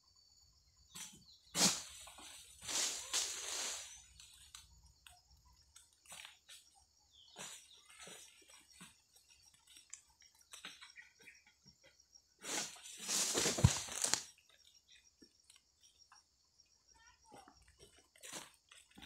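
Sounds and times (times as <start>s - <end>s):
rustling crash through leaves: 1.6s - 4.0s, 12.5s - 14.3s
steady high hiss: 2.6s - 4.2s.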